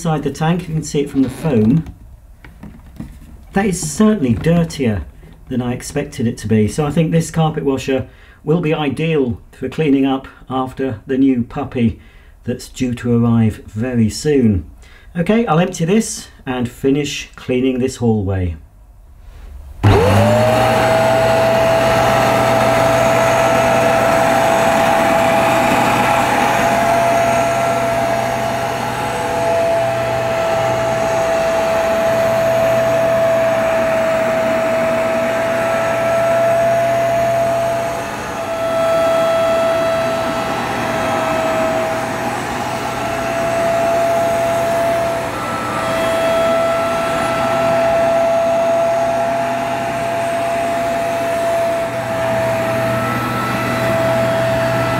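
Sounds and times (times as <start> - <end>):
carpet washer motor whine: 19.8 - 54.9.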